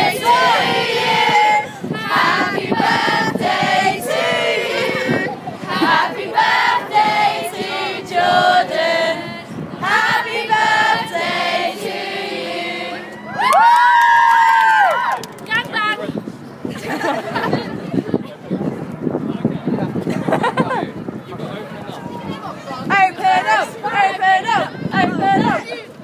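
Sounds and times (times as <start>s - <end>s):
young people singing in unison: 0.0s - 13.3s
loud high held shout: 13.0s - 15.2s.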